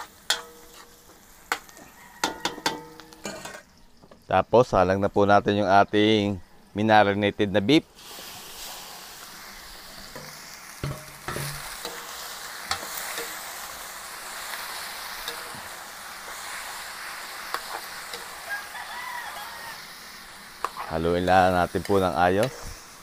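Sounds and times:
metal spatula scraping a pan: 0.0s - 3.7s, 9.9s - 13.8s, 14.6s - 18.7s, 20.6s - 22.8s
beef sizzling in a wok: 0.0s - 3.8s, 7.8s - 23.0s.

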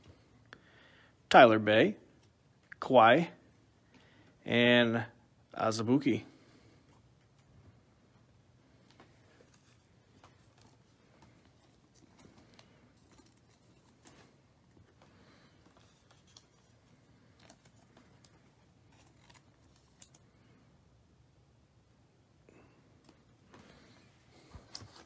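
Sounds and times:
cards clicking and scraping: 8.8s - 20.3s.

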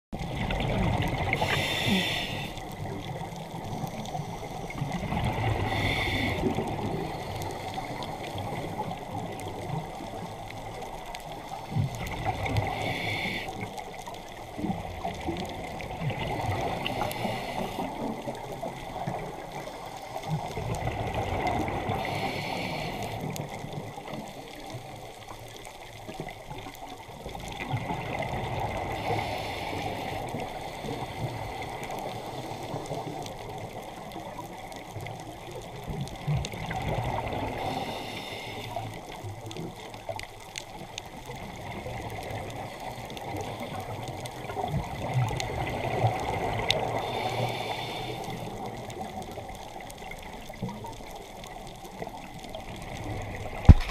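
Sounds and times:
steady underwater wash: 0.1s - 53.9s
exhaled bubbles rushing: 0.2s - 1.4s
diver breathing through regulator: 1.2s - 2.6s, 4.4s - 8.4s, 12.5s - 13.7s, 16.7s - 18.2s, 21.9s - 23.4s, 28.9s - 33.1s, 37.4s - 39.0s, 46.8s - 48.6s.

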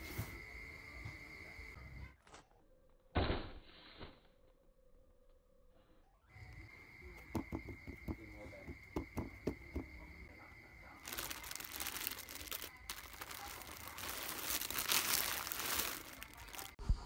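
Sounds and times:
knocks on cardboard box: 7.3s - 10.0s
plastic bags crinkling: 10.9s - 16.8s.

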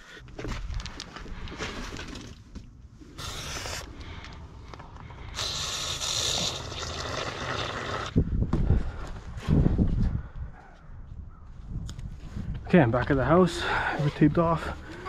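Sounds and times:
aerosol spray can hissing: 3.2s - 3.8s, 5.4s - 7.8s.

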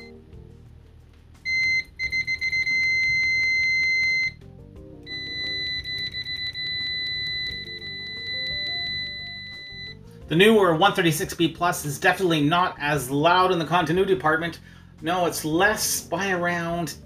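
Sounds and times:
high-pitched continuity beep: 1.5s - 4.4s, 5.1s - 10.0s.

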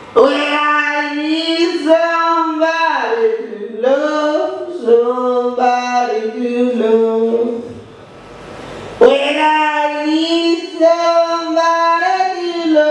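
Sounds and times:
person singing unaccompanied: 0.2s - 7.6s.

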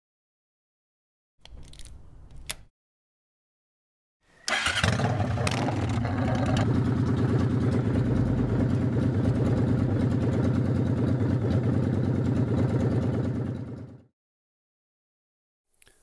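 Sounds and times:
motorcycle engine idling: 4.5s - 14.1s.

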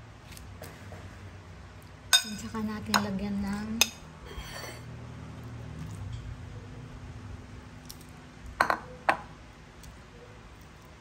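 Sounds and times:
metal utensil clinking on glass bowl: 2.1s - 3.1s, 3.8s - 4.8s.

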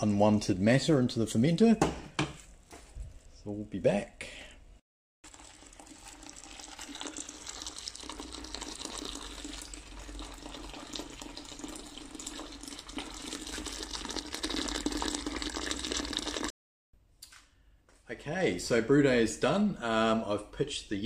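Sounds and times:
liquid pouring into plastic bucket: 5.2s - 16.5s.

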